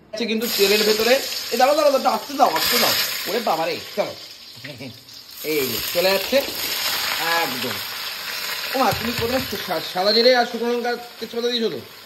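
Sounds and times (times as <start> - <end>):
hot oil sizzling and spitting: 0.4 - 12.0
person speaking: 8.7 - 11.9.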